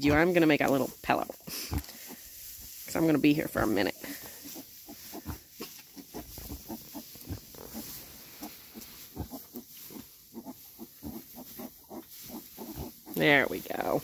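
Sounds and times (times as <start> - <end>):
straw rustling: 0.0 - 14.0
pig grunting: 4.1 - 14.0.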